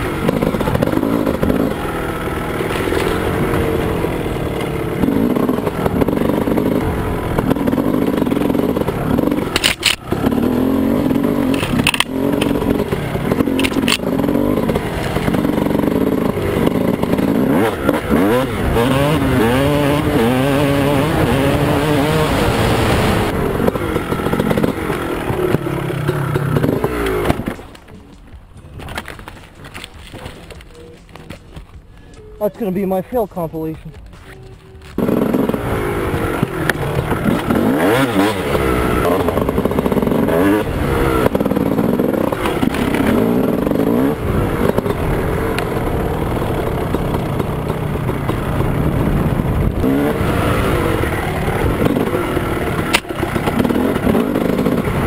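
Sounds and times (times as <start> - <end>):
dirt bike engine revving: 0.0 - 27.8, 34.8 - 55.0.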